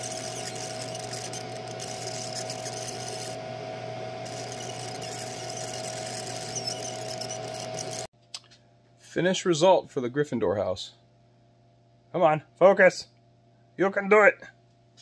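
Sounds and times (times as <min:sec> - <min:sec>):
high steady whine: 0:00.0 - 0:08.1
machine hum: 0:00.0 - 0:08.1.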